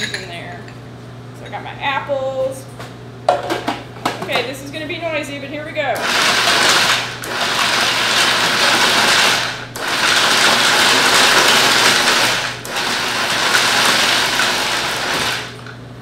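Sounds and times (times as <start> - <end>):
food processor chopping nuts: 6.0 - 15.7.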